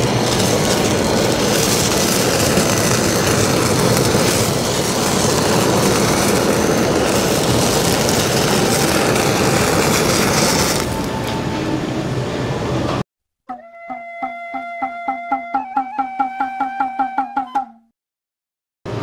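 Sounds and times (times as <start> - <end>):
kitchen torch flame hissing: 0.0 - 13.0.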